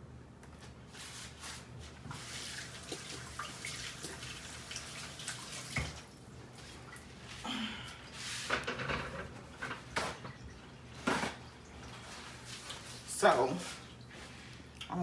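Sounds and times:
water running from tap: 2.1s - 7.1s.

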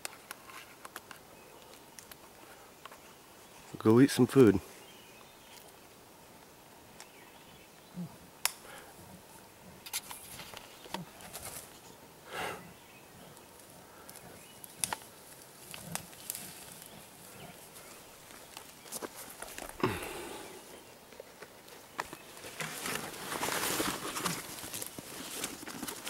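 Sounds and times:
twigs snapping: 0.0s - 3.0s, 8.4s - 8.7s, 13.6s - 20.2s
rustling in undergrowth: 0.0s - 26.0s
breathy huff: 12.2s - 12.7s, 19.8s - 20.7s.

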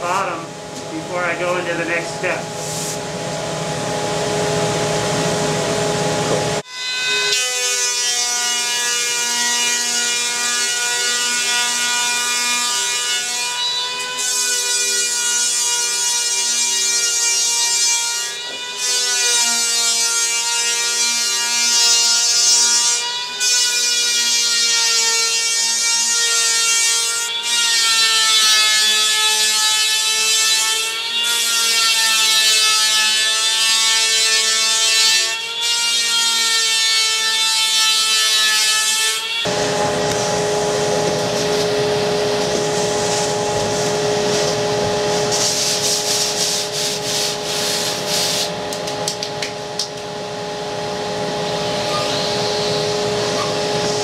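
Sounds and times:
vacuum hum and hiss: 0.0s - 6.6s, 39.5s - 54.0s
electric hand planer whining: 3.9s - 25.3s, 37.9s - 54.0s.

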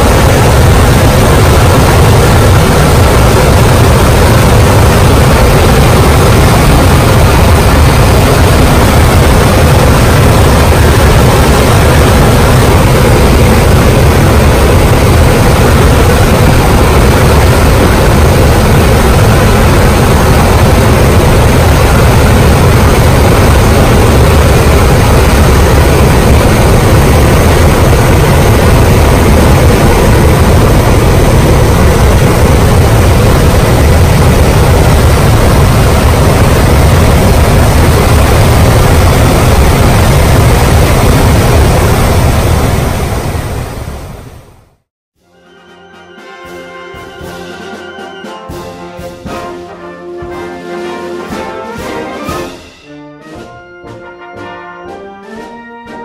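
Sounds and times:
turboprop engines at climb power: 0.0s - 44.6s
rush of air: 0.0s - 44.8s.

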